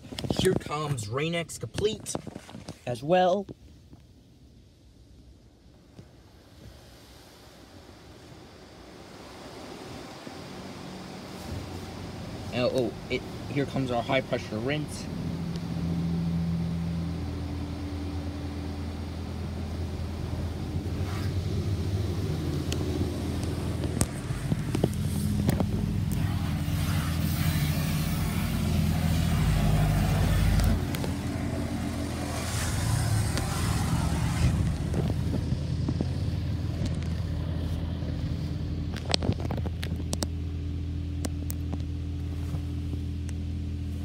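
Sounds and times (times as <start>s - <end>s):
steady low hum: 3.6s - 44.0s
high-pressure water jets spraying car: 19.5s - 36.3s.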